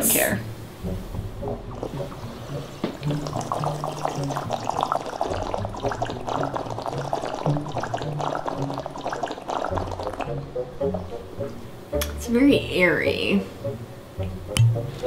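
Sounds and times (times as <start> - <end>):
held low notes: 0.0 - 6.8
person slurping and gurgling drink: 1.7 - 10.4
wet crackles: 1.7 - 10.4.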